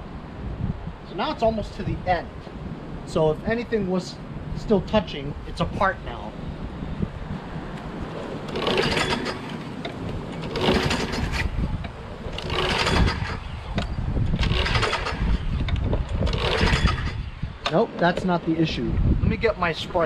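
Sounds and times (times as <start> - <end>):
mower engine cranking with recoil starter: 8.5 - 9.6, 10.4 - 11.6, 12.3 - 17.3.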